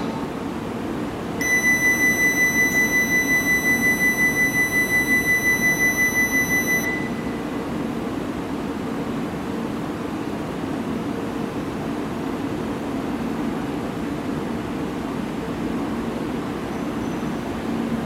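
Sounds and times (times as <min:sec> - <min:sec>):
steady low hum: 0:00.0 - 0:13.6
warbling door warning buzzer: 0:01.4 - 0:07.3.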